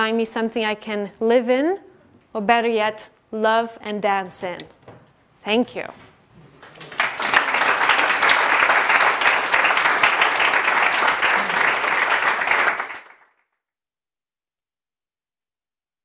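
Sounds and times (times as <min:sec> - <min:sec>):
audience applauding: 0:06.4 - 0:13.4.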